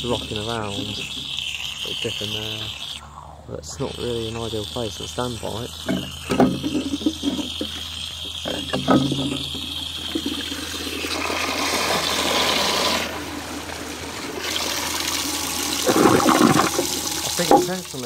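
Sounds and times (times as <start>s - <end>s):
toilet cistern flushing: 0.0s - 2.9s, 3.6s - 18.0s.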